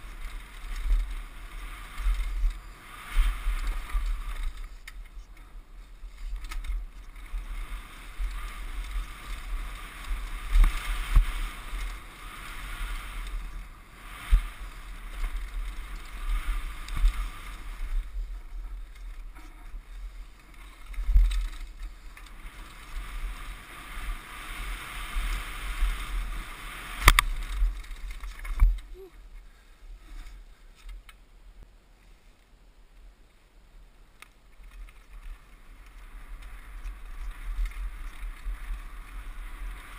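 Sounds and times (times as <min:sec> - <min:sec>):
bike knocking over rocks: 0:26.9 - 0:28.9.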